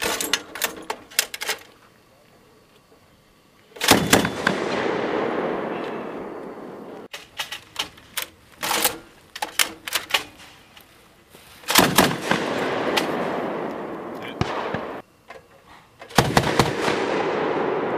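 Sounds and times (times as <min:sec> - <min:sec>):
sharp gunfire reports: 0:03.8 - 0:07.0, 0:11.7 - 0:15.0, 0:16.1 - 0:17.9
heavy gunshots with rolling echo: 0:03.8 - 0:07.1, 0:11.7 - 0:15.0, 0:16.1 - 0:17.9.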